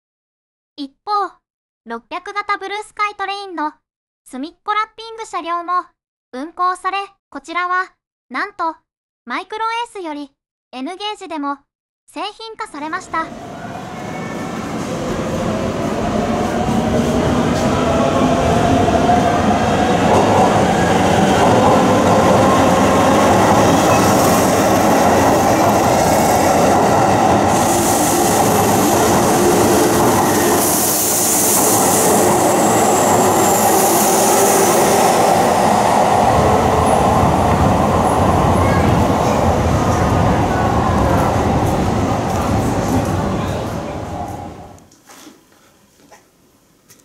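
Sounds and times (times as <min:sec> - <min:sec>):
train wheels running on rails: 0:13.3 - 0:35.0, 0:36.3 - 0:44.7.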